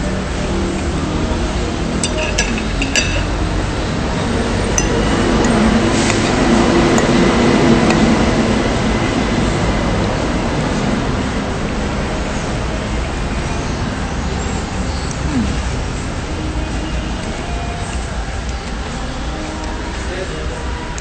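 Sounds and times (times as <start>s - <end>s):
steady background noise: 0.0s - 21.0s
metal spoon clinking on dish: 2.0s - 3.3s, 4.7s - 5.1s.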